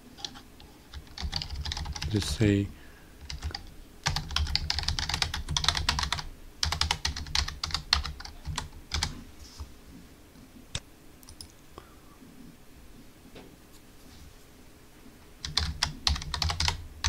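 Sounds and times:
typing on computer keyboard: 0:00.2 - 0:02.2, 0:03.2 - 0:09.1, 0:15.4 - 0:16.8.

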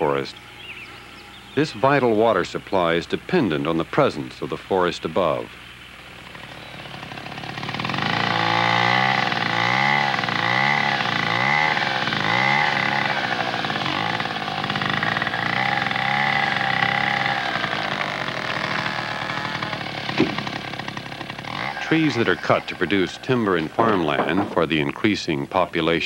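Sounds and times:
chainsaw cutting timber: 0:06.0 - 0:25.0.

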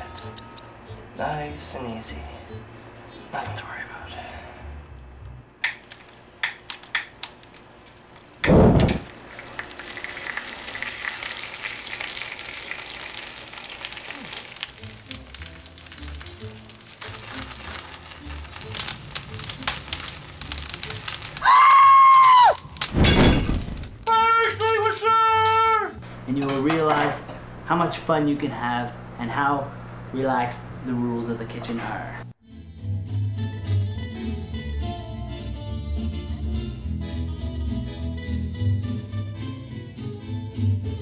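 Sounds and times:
food sizzling in oil: 0:07.6 - 0:24.0.

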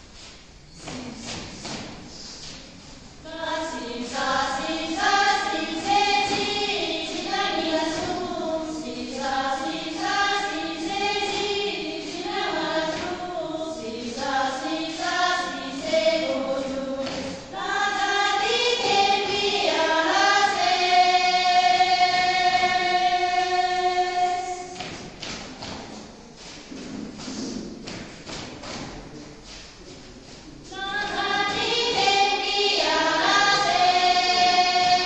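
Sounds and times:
women singing without instruments: 0:03.2 - 0:25.0, 0:30.7 - 0:35.0.

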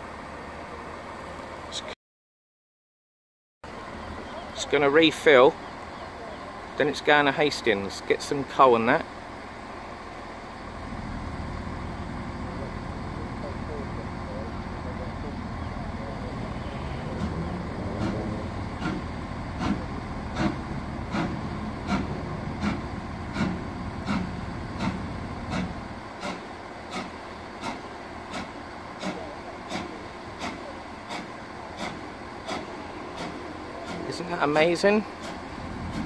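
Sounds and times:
steam locomotive exhaust chuffing: 0:03.7 - 0:36.0
low rumble: 0:10.6 - 0:25.4.

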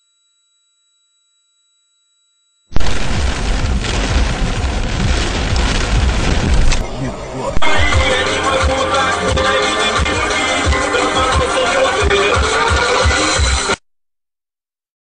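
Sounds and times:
car driving through heavy rain: 0:02.8 - 0:11.1.

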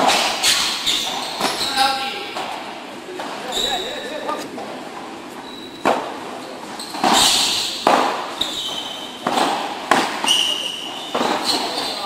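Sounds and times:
shoe squeaks: 0:00.4 - 0:02.4, 0:03.4 - 0:04.5, 0:05.4 - 0:09.2, 0:10.1 - 0:12.0
ball knocked by paddles: 0:07.0 - 0:10.4.

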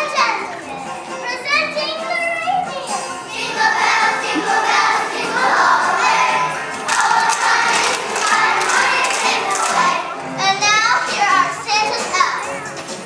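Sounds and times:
children's voices in chorus: 0:03.4 - 0:10.2.

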